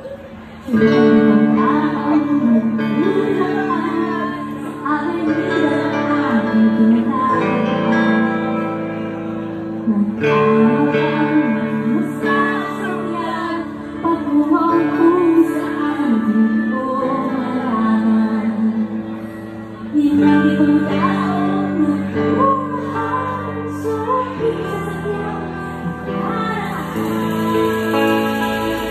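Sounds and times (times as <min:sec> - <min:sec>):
electric guitar: 0:00.0 - 0:28.9
woman singing: 0:00.0 - 0:28.9.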